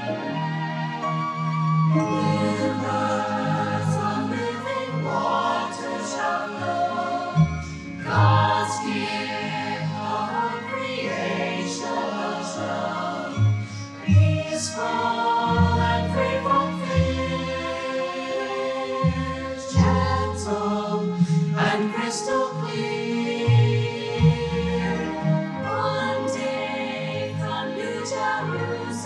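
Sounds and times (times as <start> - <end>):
choir singing: 0.0 - 29.0.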